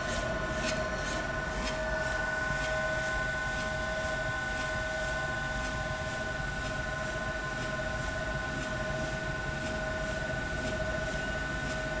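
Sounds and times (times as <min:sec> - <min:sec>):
printer running with high whine: 0:00.0 - 0:12.0.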